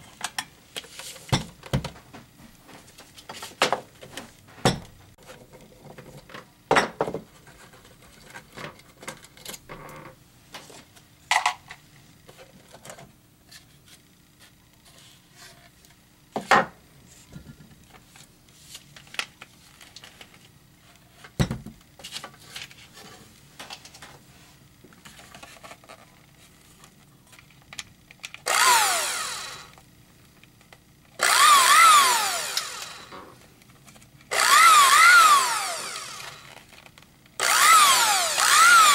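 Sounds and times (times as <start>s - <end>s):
blender motor whining: 28.4s - 29.8s, 31.2s - 33.3s, 34.3s - 36.7s, 37.4s - 38.9s.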